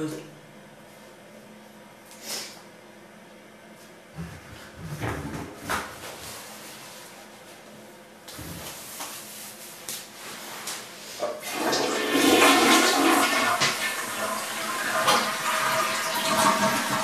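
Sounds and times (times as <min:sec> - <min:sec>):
toilet flushing: 0:11.2 - 0:17.0.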